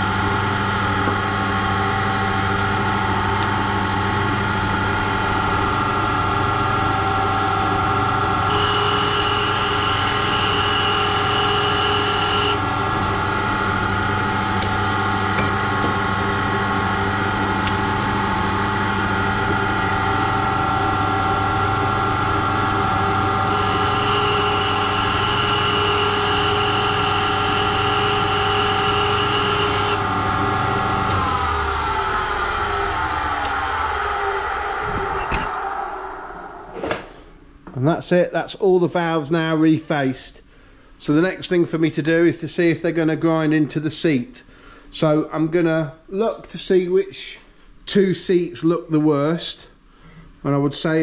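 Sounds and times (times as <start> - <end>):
grinding machine motor whine: 0.0 - 36.8
higher-pitched whine: 0.0 - 39.7
motor winding down: 1.6 - 15.3, 16.2 - 35.6.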